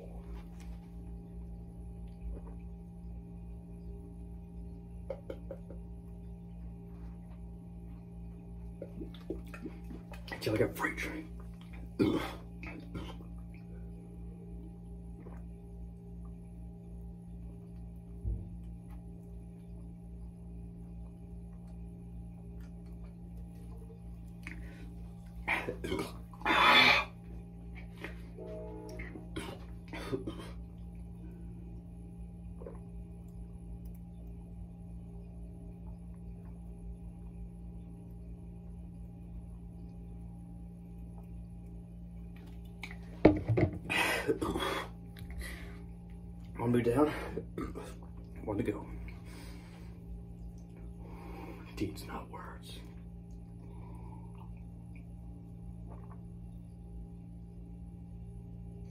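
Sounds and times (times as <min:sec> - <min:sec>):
low hum: 0:00.0 - 0:58.9
gulping water: 0:08.7 - 0:28.0, 0:28.9 - 0:49.4, 0:50.0 - 0:57.2.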